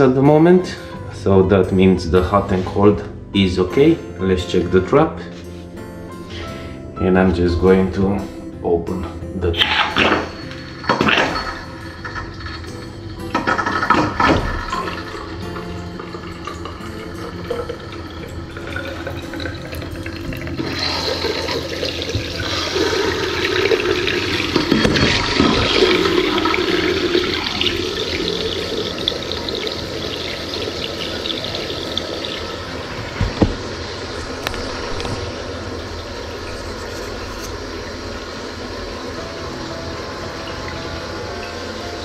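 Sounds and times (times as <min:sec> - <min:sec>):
tap water running into basin: 0:09.6 - 0:42.0
water gurgling down drain: 0:13.5 - 0:33.4.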